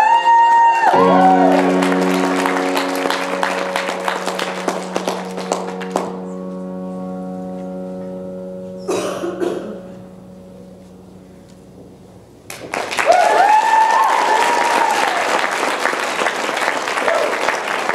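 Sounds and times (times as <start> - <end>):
loud whoop: 0.0 - 1.8, 13.0 - 15.5
audience applause and cheering: 0.0 - 6.3, 12.5 - 17.9
held music chord: 1.0 - 12.6.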